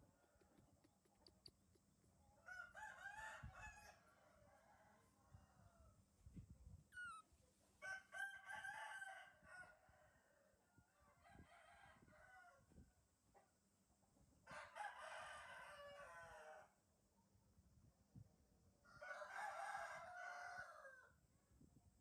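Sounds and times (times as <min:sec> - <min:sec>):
faint rooster crowing: 0:02.4 - 0:06.1, 0:07.8 - 0:12.8, 0:14.4 - 0:16.8, 0:18.8 - 0:21.2.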